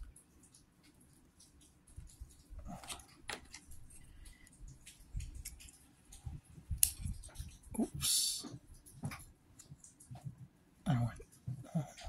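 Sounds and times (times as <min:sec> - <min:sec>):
plastic packaging crinkling: 0:02.3 - 0:06.2
plastic parts clicking: 0:02.8 - 0:04.5.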